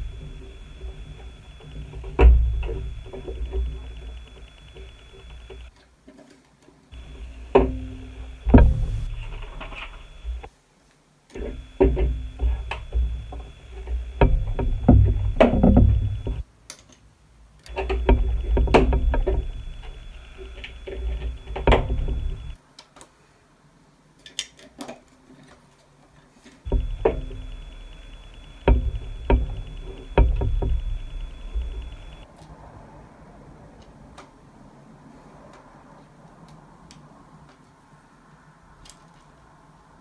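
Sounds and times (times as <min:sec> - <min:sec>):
low rumble of handling: 0:00.0 - 0:05.7, 0:07.0 - 0:10.5, 0:11.4 - 0:16.4, 0:17.7 - 0:22.6, 0:26.7 - 0:34.1
plastic bricks clicking and snapping: 0:24.2 - 0:25.5.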